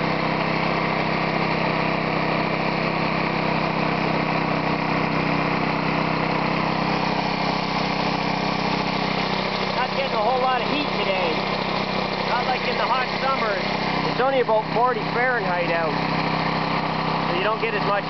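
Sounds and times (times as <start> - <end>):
lawnmower engine labouring: 0.0 - 18.0
piston air compressor running: 0.0 - 18.0.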